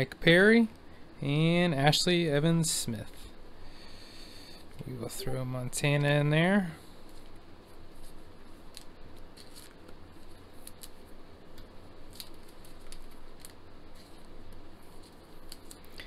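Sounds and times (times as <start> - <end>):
plastic sleeves rustling: 7.0 - 16.0.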